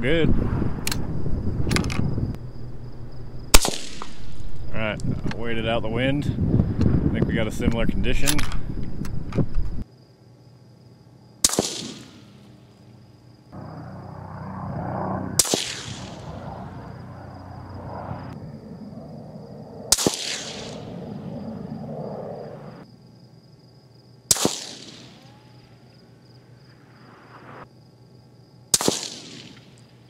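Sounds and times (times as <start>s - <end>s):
suppressed rifle shots: 3.5s - 4.5s, 11.4s - 12.3s, 15.4s - 16.4s, 19.9s - 20.9s, 24.3s - 25.2s, 28.7s - 29.8s.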